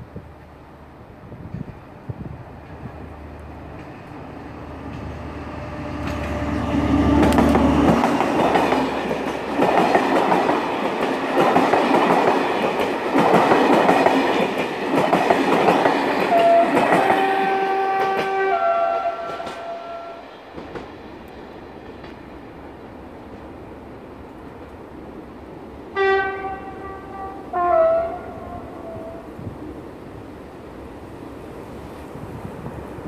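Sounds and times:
locomotive low drone: 0.0 - 9.1
train wheels rumbling and clattering: 1.2 - 24.6
train horn: 4.9 - 8.0, 16.3 - 20.4, 25.9 - 29.5.

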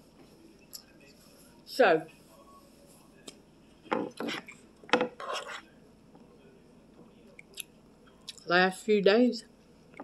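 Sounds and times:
metal spoon scraping a bowl: 5.2 - 5.7.

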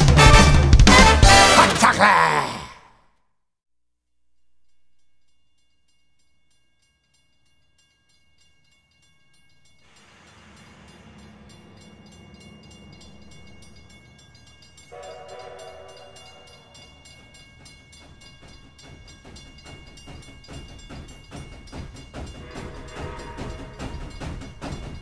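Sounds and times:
train horn chord: 0.0 - 1.6, 9.9 - 17.4, 22.3 - 24.8
train rumbling: 9.3 - 25.0.

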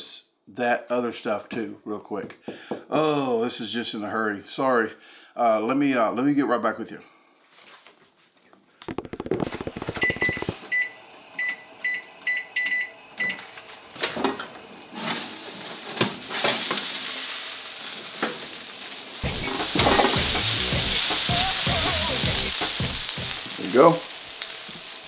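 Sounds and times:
sizzling sheet pan: 8.9 - 10.8, 13.4 - 25.0
short electronic beeps: 9.8 - 12.9.

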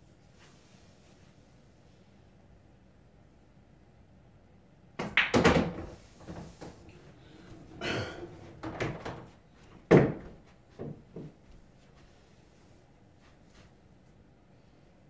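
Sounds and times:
pool ball rolling: 5.0 - 11.3
pool balls and cue knocking: 5.0 - 11.5.

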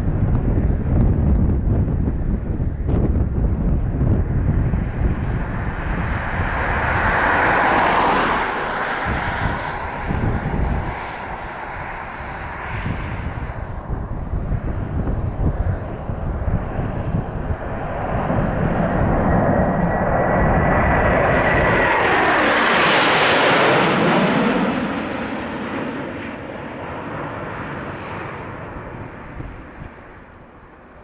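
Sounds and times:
jet aircraft roaring past: 0.0 - 31.0
thin high jet whine: 2.0 - 25.2.

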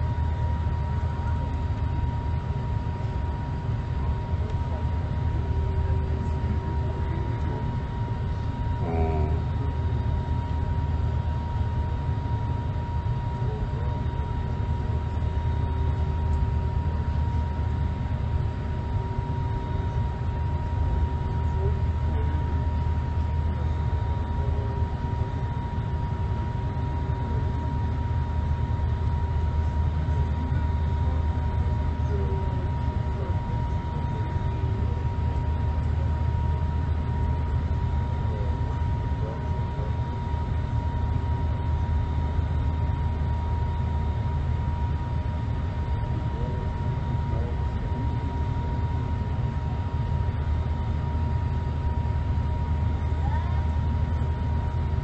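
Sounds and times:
low rumble of engines and airflow: 0.0 - 55.0
thin steady whine: 0.0 - 55.0.

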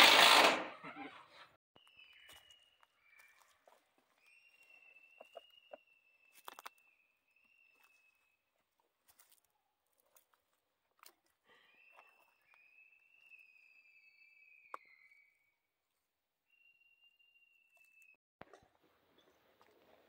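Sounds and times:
feet on dry leaves: 7.7 - 11.2.

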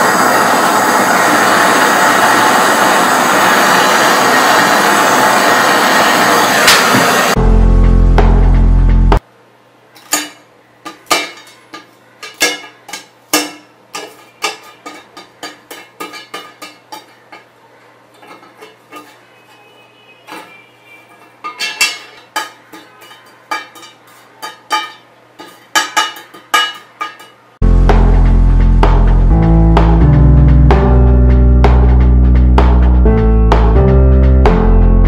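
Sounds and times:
pieces dropping onto metal: 10.0 - 17.5, 21.1 - 27.4.

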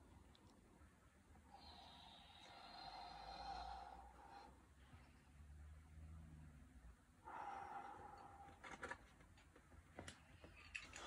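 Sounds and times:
faint noisy breath out: 1.5 - 5.3, 7.2 - 9.0.

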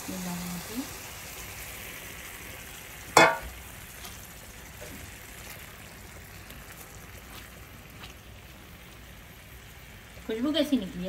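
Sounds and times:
food sizzling in a pan: 0.0 - 11.0
metallic clang: 3.2 - 3.5.

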